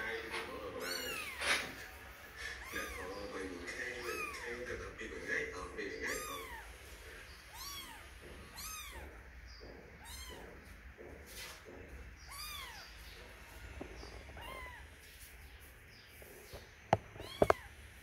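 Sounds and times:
kitten mewing: 0.7s - 1.8s, 2.4s - 3.3s, 4.0s - 4.6s, 6.0s - 6.8s, 7.5s - 9.2s, 10.0s - 10.5s.

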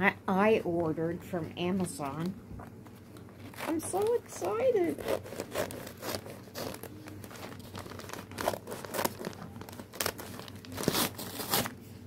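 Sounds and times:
paper bag crinkling: 3.3s - 11.9s.

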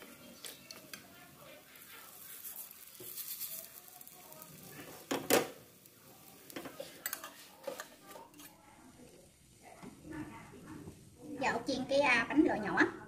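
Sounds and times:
utensils clinking against dishes: 6.6s - 8.6s.

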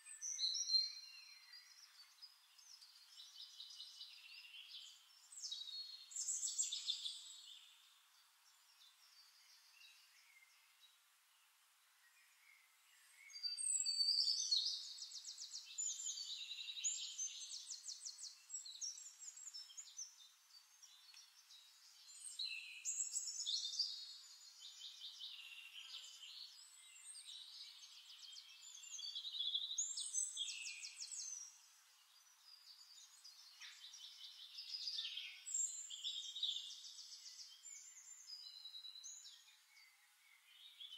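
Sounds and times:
birds chirping: 12.0s - 40.9s.

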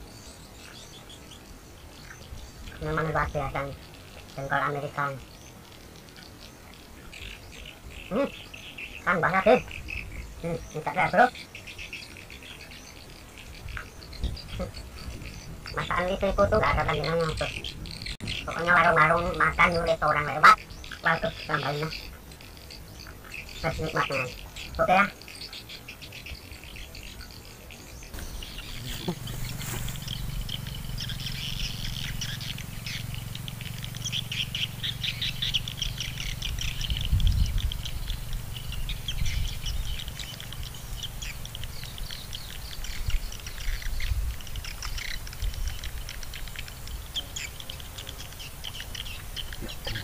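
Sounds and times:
birds chirping and trilling: 0.0s - 50.0s
low uneven rumble: 27.8s - 50.0s.

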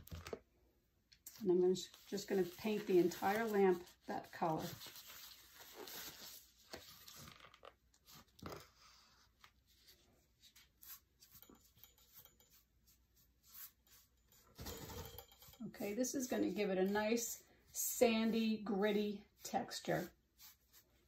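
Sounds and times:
paintbrush scraping paste: 8.8s - 14.4s, 19.3s - 21.0s.

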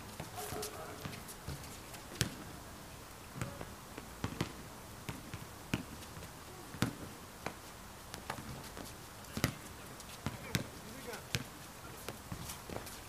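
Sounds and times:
basketball bouncing on hard court: 10.2s - 10.7s.

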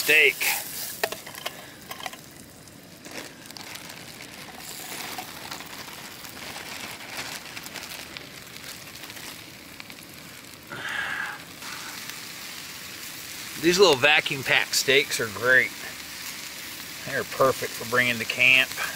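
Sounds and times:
plastic bag crinkling: 0.0s - 10.7s
butter sizzling in a frying pan: 0.0s - 18.9s
mushrooms pattering into pan: 0.0s - 18.9s.

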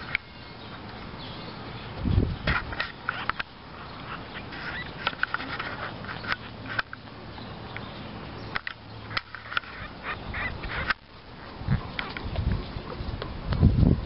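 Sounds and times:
puppies squeaking and grunting: 2.5s - 6.7s, 9.0s - 12.4s.

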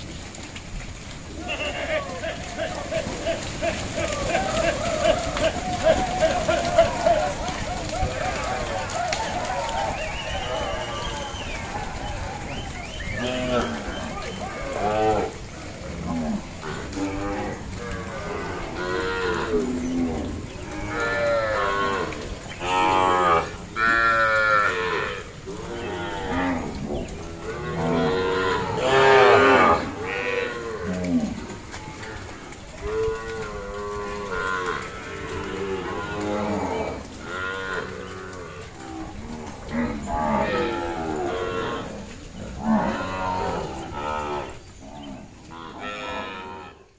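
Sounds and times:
cattle mooing: 13.1s - 46.8s.

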